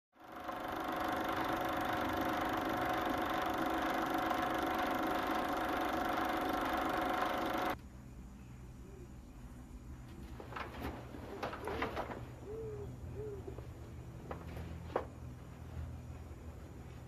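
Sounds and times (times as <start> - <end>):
held tones: 0.2 - 7.8
steady hum of noise: 0.2 - 17.0.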